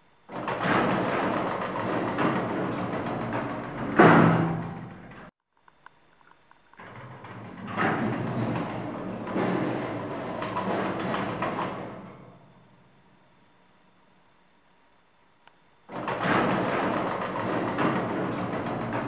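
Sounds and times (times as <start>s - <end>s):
lift doors shutting with a bang: 0.3s - 5.3s, 6.8s - 12.7s, 15.9s - 19.0s
lift doors sliding open: 0.3s - 5.3s, 6.8s - 12.7s, 15.9s - 19.0s.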